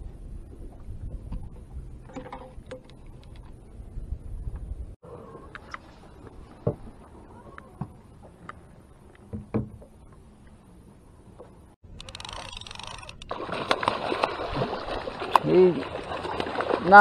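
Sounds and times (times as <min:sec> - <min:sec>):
knocks and clicks in aluminium boat: 0:00.6 - 0:03.7, 0:06.6 - 0:10.6.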